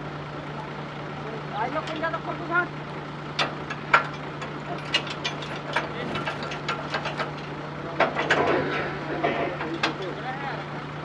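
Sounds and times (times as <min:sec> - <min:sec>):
metallic clicks and clanks: 0:03.4 - 0:10.1.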